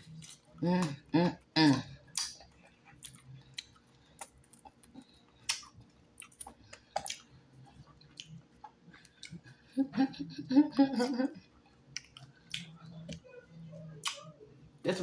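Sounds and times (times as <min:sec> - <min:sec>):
person chewing with wet mouth clicks: 0:02.1 - 0:09.5, 0:11.9 - 0:13.2.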